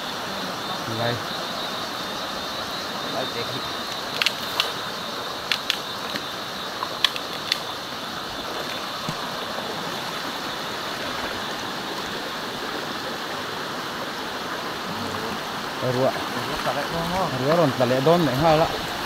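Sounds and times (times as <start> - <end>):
flowing river water: 0.0 - 19.0
sharp clicks: 3.9 - 4.8, 5.4 - 7.7.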